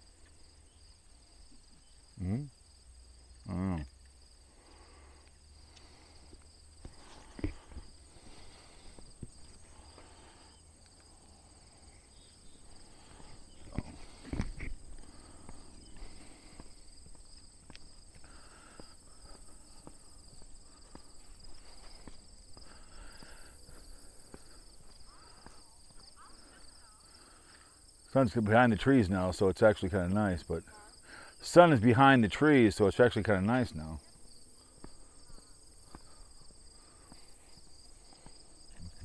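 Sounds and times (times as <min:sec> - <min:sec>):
crickets chirring: 0:00.0 - 0:39.0
footsteps on paved path: 0:04.6 - 0:11.2, 0:11.8 - 0:27.7, 0:34.2 - 0:39.0.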